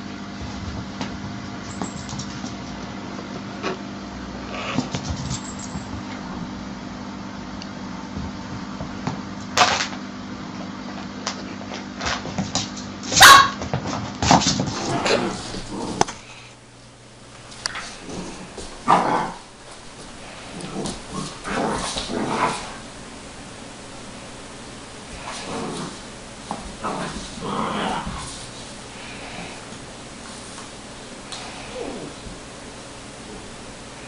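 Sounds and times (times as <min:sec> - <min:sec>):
steady low hum: 0:00.0 - 0:34.0
dog yipping and barking: 0:13.1 - 0:13.6.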